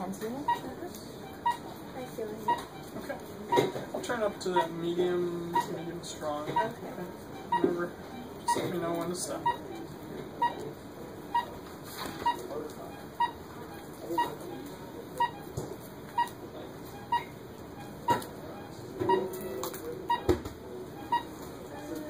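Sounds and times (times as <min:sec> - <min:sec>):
monitor beeping: 0:00.0 - 0:22.0.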